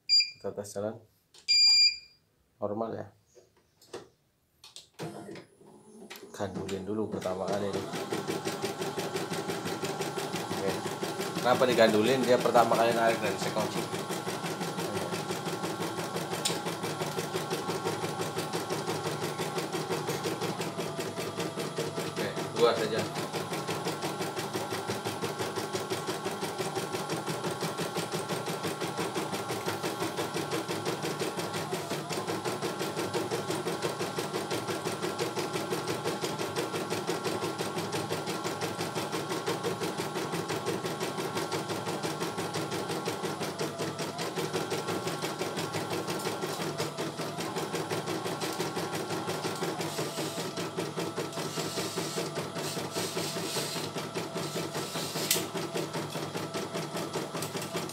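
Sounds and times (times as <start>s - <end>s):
embroidery machine stitching: 5.0s - 57.9s.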